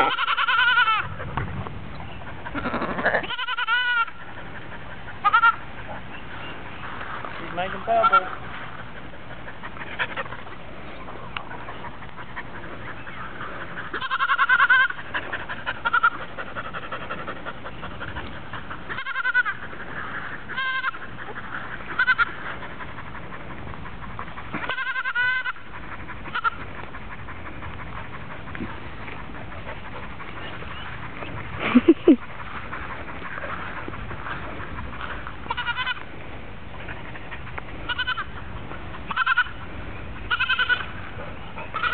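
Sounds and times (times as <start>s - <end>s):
goat bleating: 0.0s - 1.1s, 2.4s - 4.2s, 5.2s - 5.6s, 7.8s - 8.4s, 13.8s - 16.2s, 18.9s - 19.7s, 20.5s - 21.1s, 21.9s - 22.4s, 24.5s - 26.7s, 35.4s - 36.1s, 37.9s - 38.4s, 39.1s - 39.6s, 40.3s - 41.0s.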